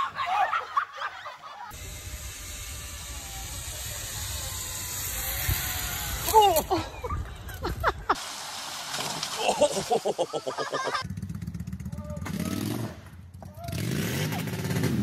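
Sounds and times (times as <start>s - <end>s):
people crying and shouting: 0.0s - 1.6s, 5.4s - 8.2s
zip line rushing hiss: 1.7s - 11.0s.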